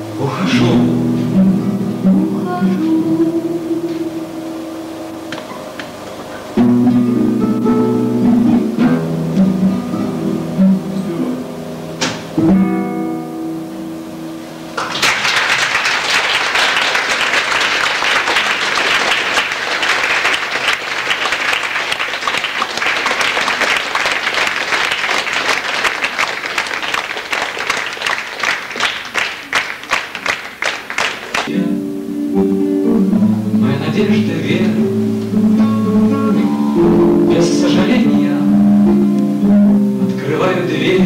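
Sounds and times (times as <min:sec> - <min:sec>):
acoustic guitars chord ringing: 0:00.0 - 0:14.8, 0:31.5 - 0:41.0
audience applauding: 0:14.8 - 0:31.5.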